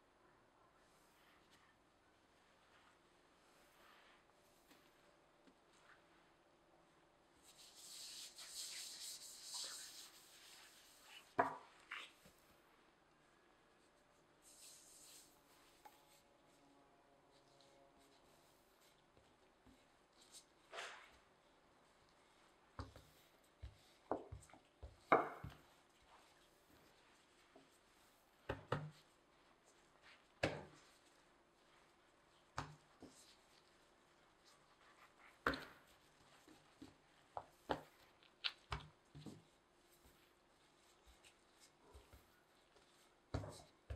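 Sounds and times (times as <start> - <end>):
soft thumps of dough pressed: 22.7 - 29.1, 30.0 - 33.7, 34.8 - 43.9.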